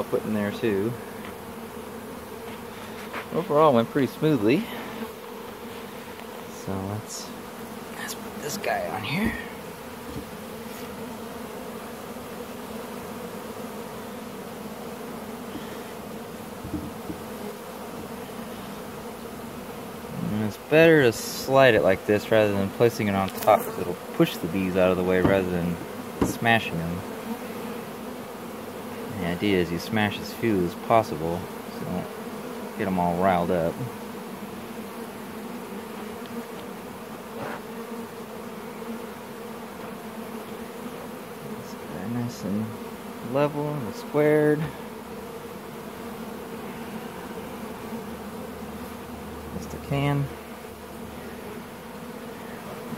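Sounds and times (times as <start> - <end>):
honeybees buzzing: 0.0 - 52.9
faint knocks: 9.2 - 10.4, 16.6 - 17.3, 25.2 - 26.5.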